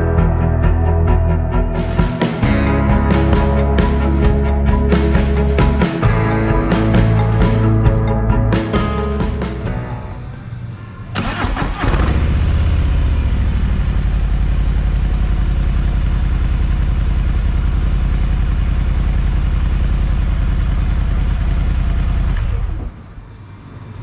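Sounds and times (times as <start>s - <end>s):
motorcycle engine starting: 0.0s - 23.2s
motorcycle engine idling: 11.3s - 22.7s.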